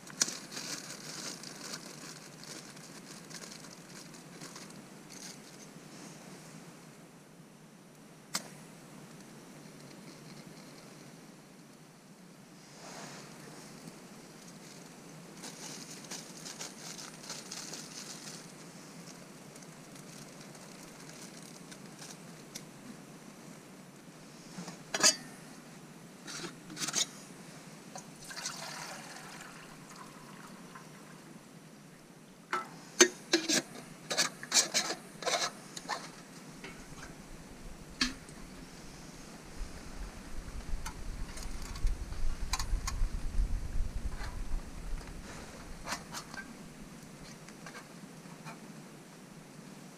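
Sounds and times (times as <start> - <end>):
water pouring and sloshing: 28.2 - 31.2.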